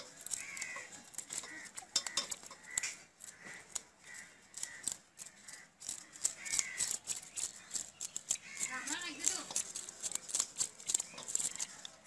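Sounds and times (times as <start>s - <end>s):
knife scraping fish scales: 0.0s - 12.0s.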